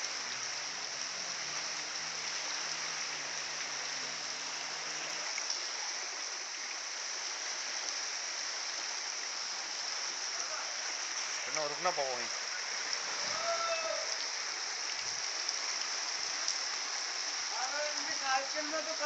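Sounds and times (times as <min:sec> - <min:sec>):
floodwater rushing: 0:00.0 - 0:19.0.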